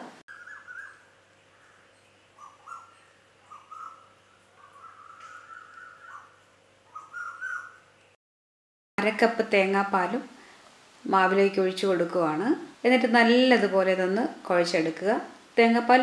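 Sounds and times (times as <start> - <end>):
steady low hum: 0.0 - 8.2
faint bird calls: 0.3 - 8.0.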